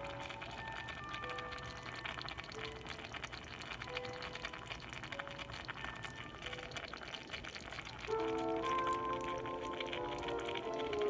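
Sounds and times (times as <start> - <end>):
food sizzling and bubbling in pan: 0.0 - 11.0
soft music notes: 8.1 - 11.0.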